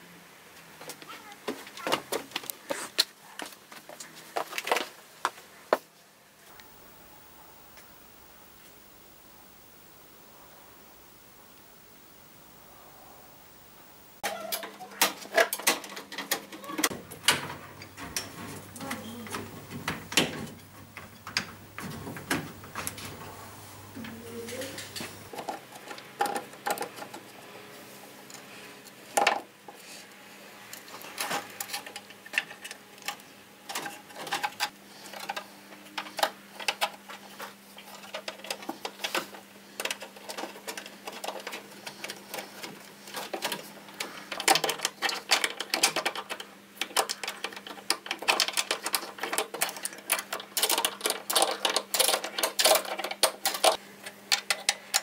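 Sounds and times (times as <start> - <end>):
steady low hum: 6.5 - 14.2, 16.9 - 25.3
metal clicking and tapping: 15.0 - 23.2.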